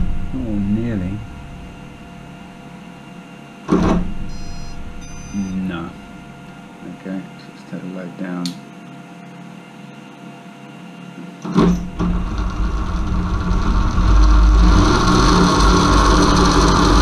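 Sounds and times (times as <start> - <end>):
motor starting clunk: 3.7 - 5.3, 11.4 - 17.0
electric motor spinning: 11.9 - 17.0.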